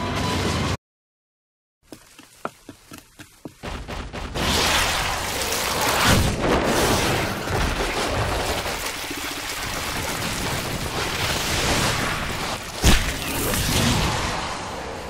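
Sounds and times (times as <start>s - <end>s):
fight blows and crashing: 3.6s - 9.0s.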